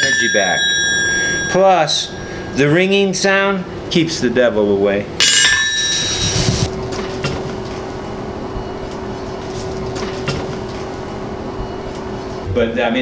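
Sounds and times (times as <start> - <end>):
hammer striking anvil: 0.0 - 2.8, 5.2 - 6.7
anvil ringing: 0.0 - 3.2, 5.2 - 6.7
steady low hum: 0.0 - 12.9.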